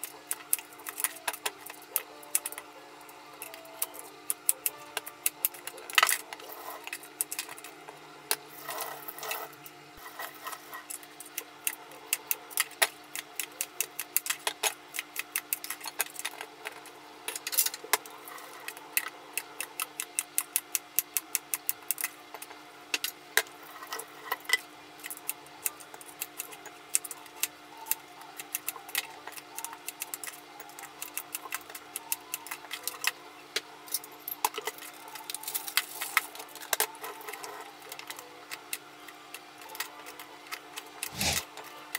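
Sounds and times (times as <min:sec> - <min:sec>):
knife chopping on cutting board: 0:41.1 - 0:41.4.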